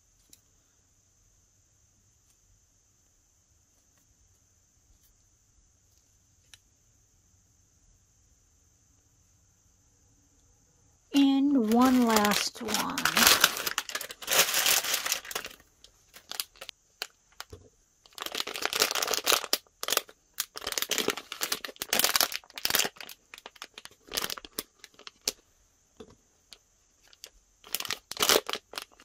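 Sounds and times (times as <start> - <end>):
packaging crinkling and tearing: 11.2 - 25.4, 27.0 - 29.0.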